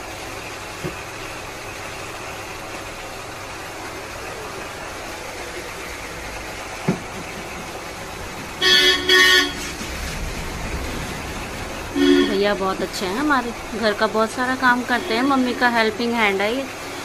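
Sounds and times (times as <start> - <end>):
horn toots: 8.6 - 9.8, 11.9 - 12.5.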